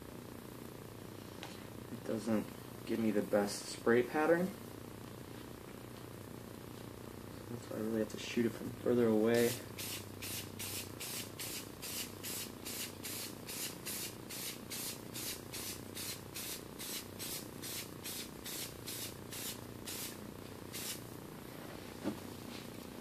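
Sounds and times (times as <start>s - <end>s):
spray-paint can hissing bursts: 9.4s - 21.0s.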